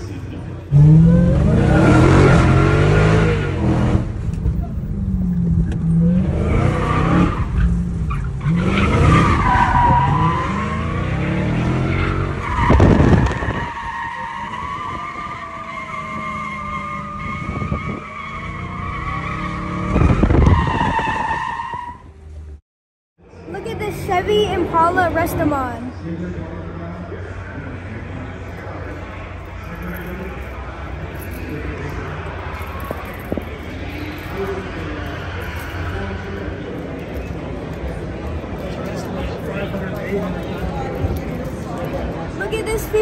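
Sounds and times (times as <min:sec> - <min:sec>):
car engine revving: 0:00.0 - 0:13.7, 0:27.2 - 0:43.0
tires squealing: 0:00.0 - 0:22.3, 0:27.0 - 0:43.0.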